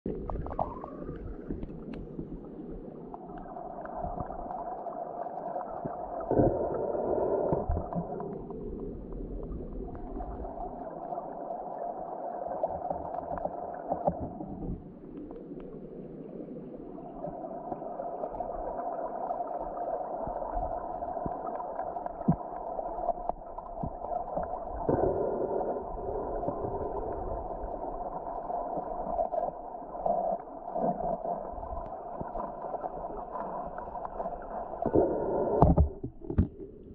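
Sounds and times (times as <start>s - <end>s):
muffled underwater stream rush: 0.0s - 36.9s.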